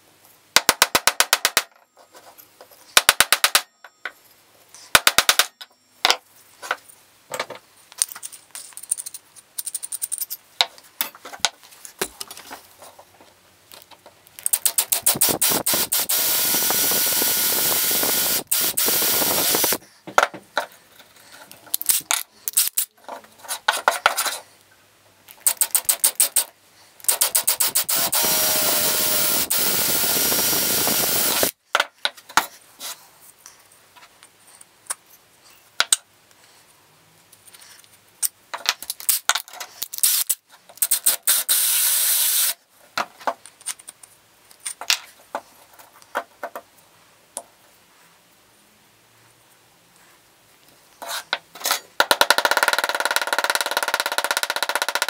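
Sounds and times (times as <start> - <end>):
quick drill blips and taps: 14.5 - 19.8, 27.1 - 31.5
drill boring into wood: 14.6 - 19.8, 27.1 - 31.5, 40.9 - 42.6.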